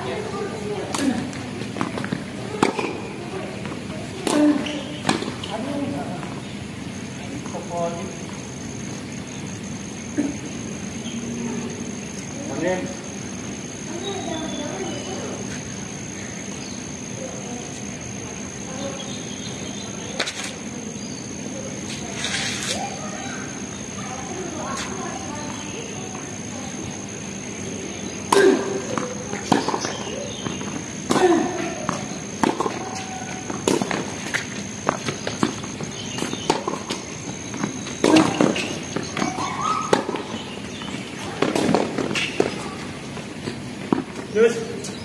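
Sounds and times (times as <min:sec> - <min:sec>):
outdoor background hiss: 0:00.0 - 0:45.0
players' footsteps: 0:00.5 - 0:08.5, 0:28.2 - 0:45.0
tennis racket hitting ball: 0:28.2 - 0:42.6.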